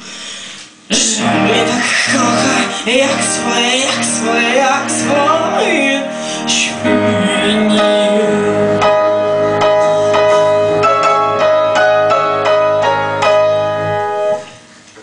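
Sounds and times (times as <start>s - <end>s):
low bass: 0.9s - 5.9s
woman singing: 0.9s - 9.0s.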